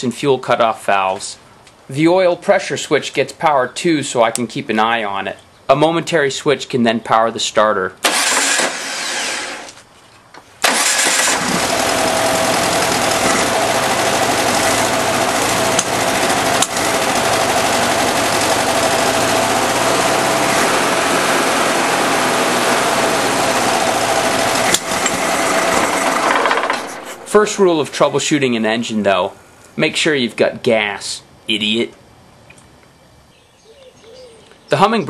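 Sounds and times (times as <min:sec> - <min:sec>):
starter motor cranking engine: 0:08.0 - 0:09.8, 0:10.6 - 0:27.4.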